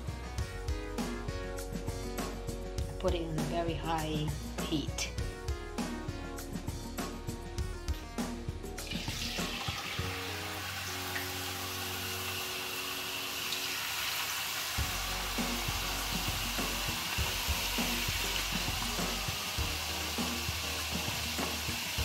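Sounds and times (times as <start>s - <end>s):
potatoes sizzling in hot oil: 8.8s - 22.0s.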